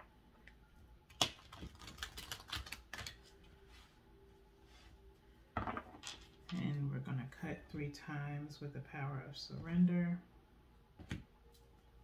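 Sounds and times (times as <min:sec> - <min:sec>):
cards being shuffled: 0:01.1 - 0:03.4.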